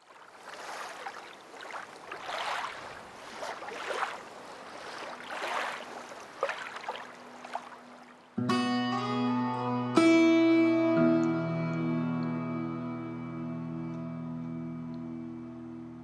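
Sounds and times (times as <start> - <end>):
small waves washing over sand: 0.0 - 8.4.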